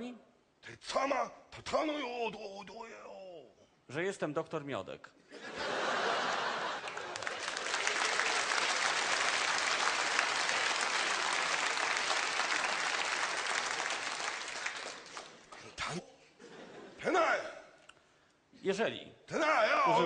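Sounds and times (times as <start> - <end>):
audience applauding: 6.2 - 15.7.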